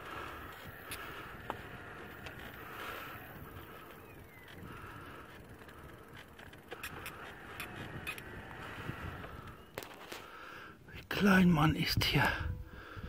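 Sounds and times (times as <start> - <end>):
sharp rattling clicks: 0.0 - 10.0
tyre and wind noise: 0.0 - 13.0.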